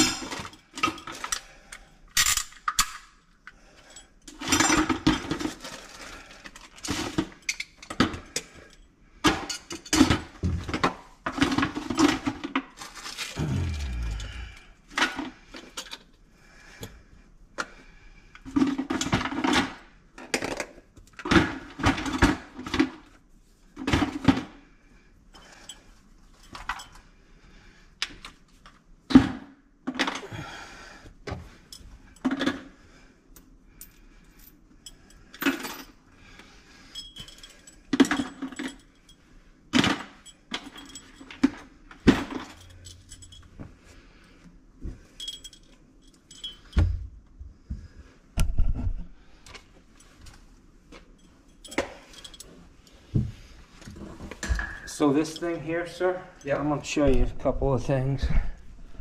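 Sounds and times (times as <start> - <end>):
metallic tool clinks and clanks: 0.0 - 3.1, 25.4 - 27.0, 36.8 - 43.7, 45.1 - 47.0, 51.0 - 53.0, 54.4 - 56.8.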